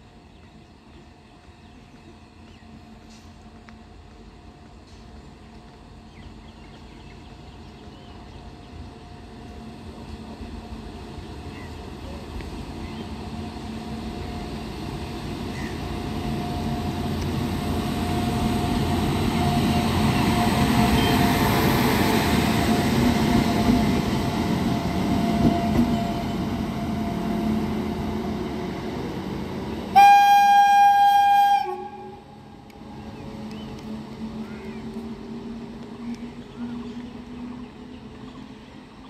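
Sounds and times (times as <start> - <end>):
electric locomotive rumbling past: 0.0 - 39.0
locomotive horn blast: 29.9 - 32.4.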